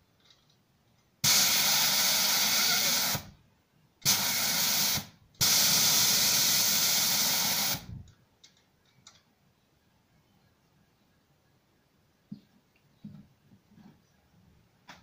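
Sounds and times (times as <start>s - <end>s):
air blow gun hissing bursts: 1.2s - 3.3s, 4.0s - 8.0s.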